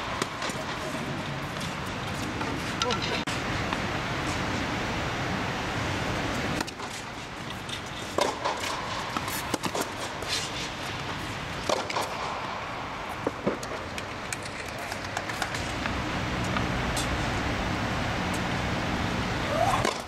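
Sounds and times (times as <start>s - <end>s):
balls bouncing on hard court: 0.0s - 3.2s, 6.6s - 12.3s
tennis balls struck by rackets: 0.0s - 3.2s, 6.5s - 12.6s, 19.5s - 20.0s
steady rushing noise: 0.0s - 20.0s.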